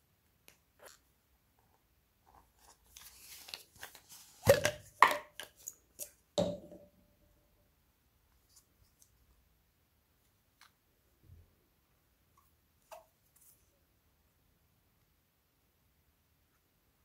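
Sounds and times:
soft rustle: 0:02.2 - 0:04.4, 0:08.3 - 0:09.4, 0:12.4 - 0:13.9.

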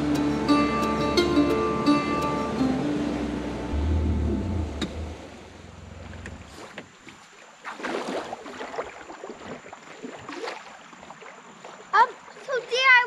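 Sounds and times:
water splashing: 0:03.2 - 0:13.0.

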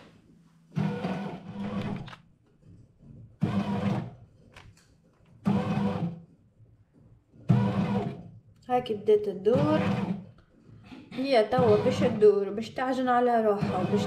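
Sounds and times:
bread machine motor kneading: 0:00.7 - 0:04.6, 0:05.3 - 0:06.3, 0:06.9 - 0:08.4, 0:09.0 - 0:12.8, 0:13.4 - 0:14.0.

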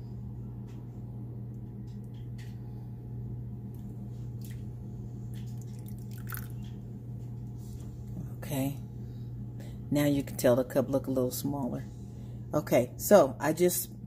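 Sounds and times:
steady low hum: 0:00.0 - 0:14.0
water splashing into dish: 0:05.6 - 0:06.7.

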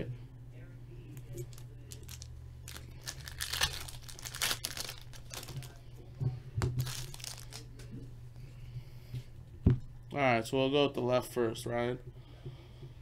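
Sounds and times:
plastic wrapper crinkling: 0:01.2 - 0:05.8, 0:06.6 - 0:07.8.

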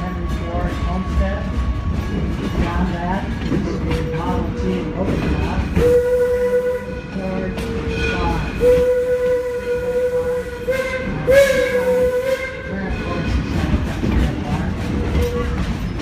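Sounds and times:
train rumbling along track: 0:00.0 - 0:16.0
steam whistle blasts: 0:05.8 - 0:07.1, 0:08.6 - 0:12.7.

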